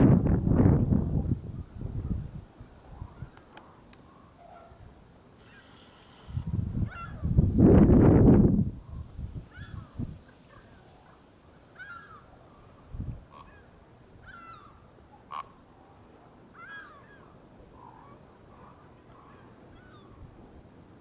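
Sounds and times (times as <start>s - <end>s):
geese honking: 14.3s - 15.6s.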